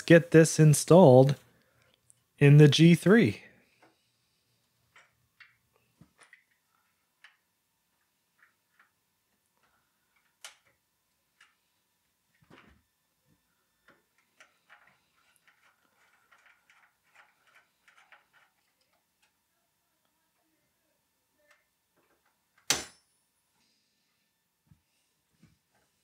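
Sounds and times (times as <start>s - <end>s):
small rattling clicks: 13.8s - 19.4s.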